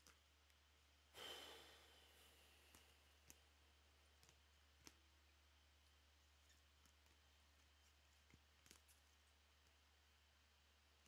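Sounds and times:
low steady hum: 0.0 - 11.0
soft sigh: 1.2 - 2.7.

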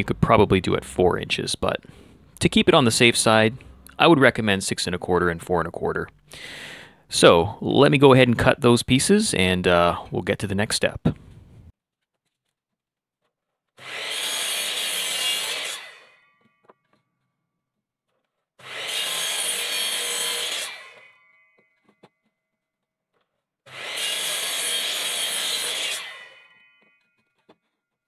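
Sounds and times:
miter saw cutting wood: 0.0 - 5.0, 13.8 - 16.8, 18.6 - 22.1, 23.7 - 27.6.

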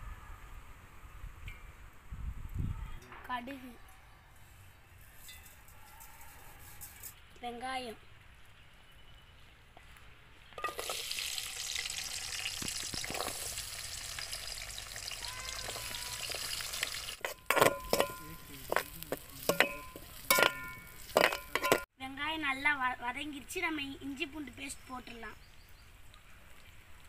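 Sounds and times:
metal spoon scraping a pan: 10.6 - 11.1, 15.7 - 21.9
onions sizzling in hot oil: 10.6 - 21.8.

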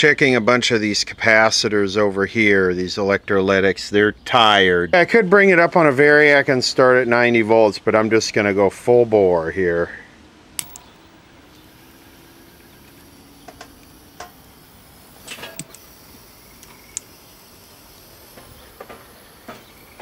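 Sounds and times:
faint clicks and ticks: 10.6 - 10.9, 15.2 - 20.0.

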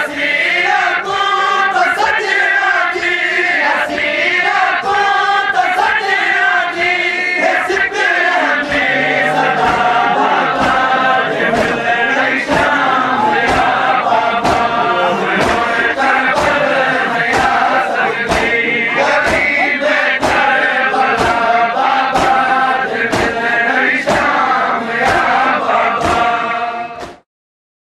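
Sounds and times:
men chanting in unison: 0.0 - 27.2
hands striking chests: 8.8 - 21.5.

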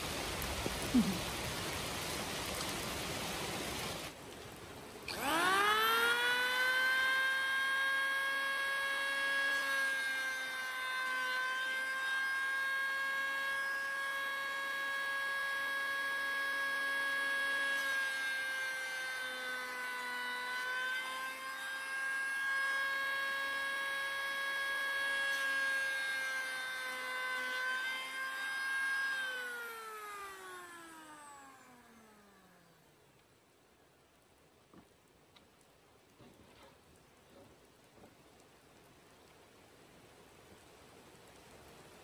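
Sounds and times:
power tool motor whining: 5.0 - 33.4.

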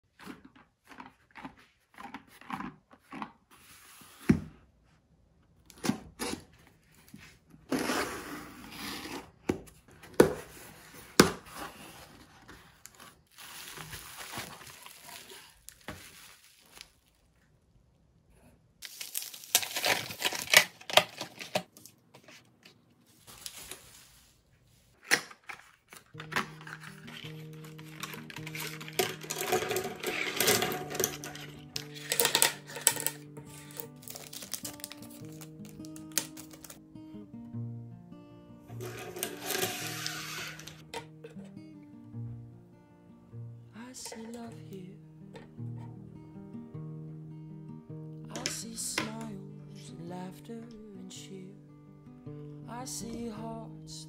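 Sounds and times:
packaging rustling and tearing: 10.4 - 17.3, 18.8 - 22.0, 23.1 - 24.2, 25.0 - 36.8, 38.8 - 40.9.

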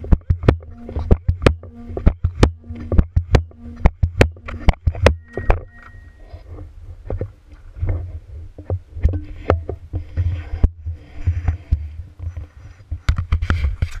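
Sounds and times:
pogo stick knocks and clatter: 0.0 - 5.8.

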